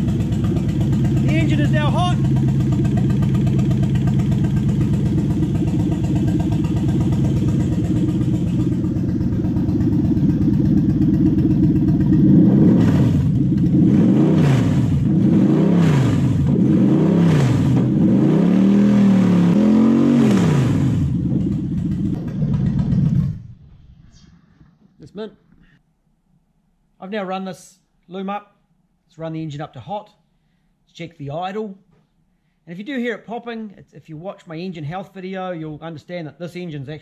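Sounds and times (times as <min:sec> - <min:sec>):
car engine idling and revving: 0:00.0 - 0:24.0.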